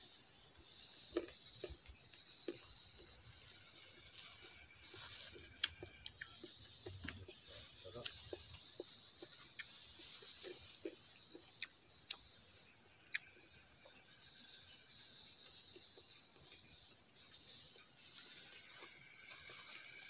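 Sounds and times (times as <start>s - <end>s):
forest insects chorus: 0.0s - 20.0s
person chewing food: 0.7s - 16.9s
sharp ticks: 10.8s - 12.4s, 13.1s - 13.4s.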